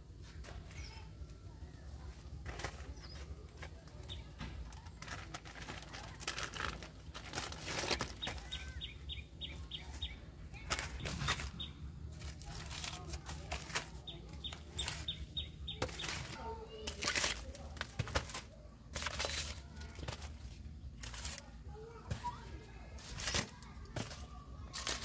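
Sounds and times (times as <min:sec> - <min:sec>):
rustling: 0:01.9 - 0:25.0
bird chirping: 0:08.1 - 0:11.9, 0:14.0 - 0:16.3.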